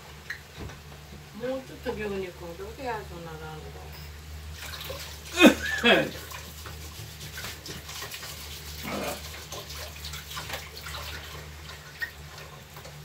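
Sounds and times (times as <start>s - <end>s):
tap water running into sink: 4.5s - 13.0s.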